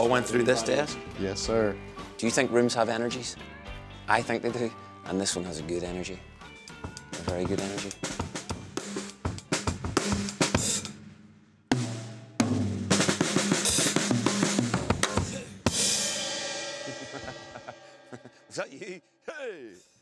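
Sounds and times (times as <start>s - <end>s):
drum kit playing: 6.7s - 18.7s
cymbal crash ringing: 15.8s - 18.6s.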